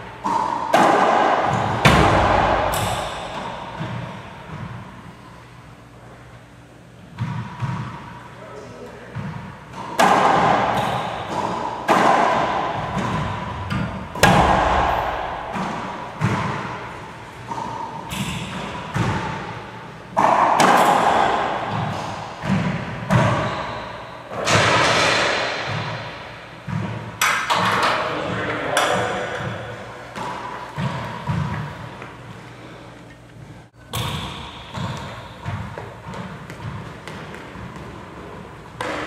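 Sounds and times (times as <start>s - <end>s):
ball smacking racquets and walls: 0.0s - 5.2s, 7.1s - 8.2s, 9.1s - 32.7s, 33.8s - 39.0s.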